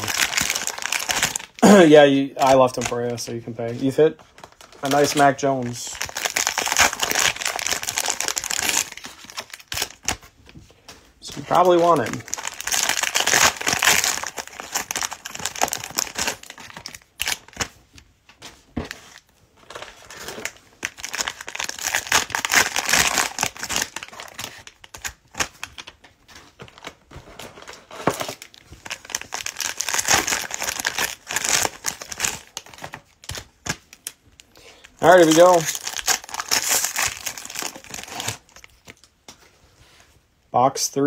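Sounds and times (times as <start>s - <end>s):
foil wrapper crinkling and tearing: 0.0s - 1.8s, 3.8s - 10.3s, 11.3s - 17.7s, 19.1s - 26.0s, 28.0s - 39.1s.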